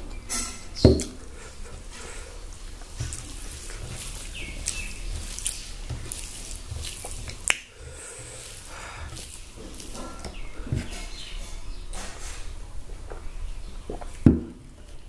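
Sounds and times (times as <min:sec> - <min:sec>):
hand squishing rice: 0:00.7 - 0:15.0
wet mouth smacks while chewing: 0:03.1 - 0:07.7.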